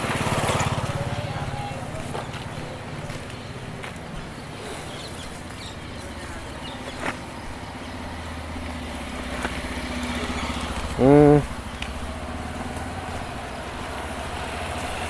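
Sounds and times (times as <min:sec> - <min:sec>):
motor engine humming: 0:00.0 - 0:15.0.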